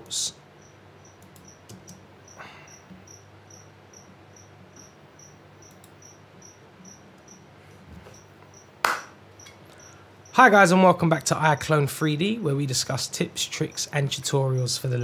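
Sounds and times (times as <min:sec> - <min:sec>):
steady low hum: 0:00.0 - 0:15.0
faint high-pitched chirps: 0:02.2 - 0:07.5.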